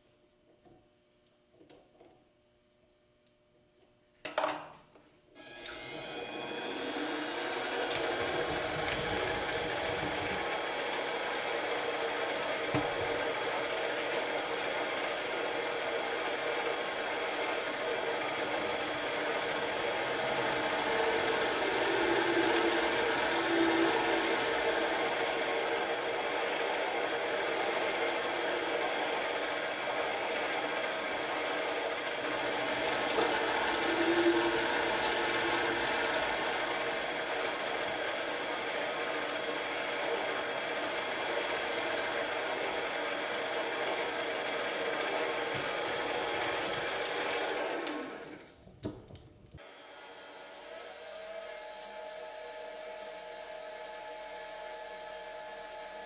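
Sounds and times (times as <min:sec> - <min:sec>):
lathe motor humming: 0:05.4 - 0:48.4
turning tool cutting brass: 0:18.4 - 0:31.3, 0:32.0 - 0:47.6.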